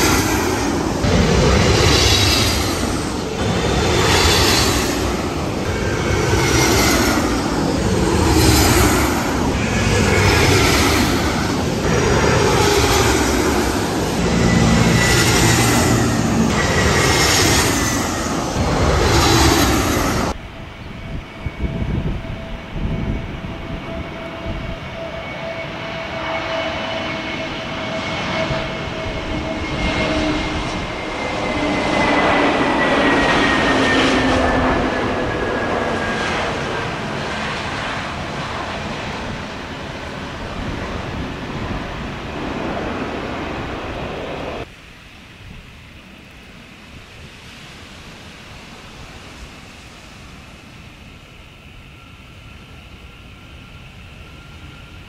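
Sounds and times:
rushing roar with falling sweeps: 0.0 - 20.4
jet engines whining: 0.0 - 55.0.

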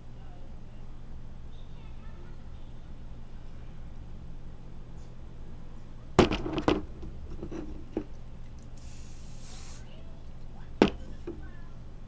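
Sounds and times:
aerosol hairspray hissing: 8.8 - 9.9.

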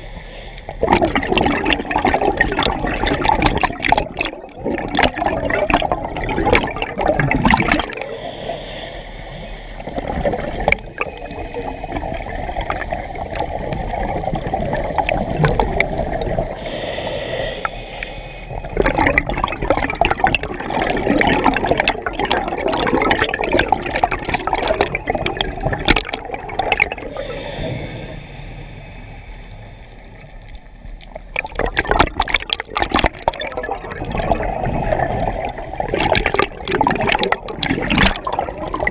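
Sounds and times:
hissing inhale through regulator: 0.0 - 0.9, 7.9 - 13.5, 14.4 - 19.1, 26.5 - 31.2
exhaled bubbles underwater: 0.7 - 8.2, 9.8 - 16.8, 18.5 - 28.9, 30.1 - 38.9.

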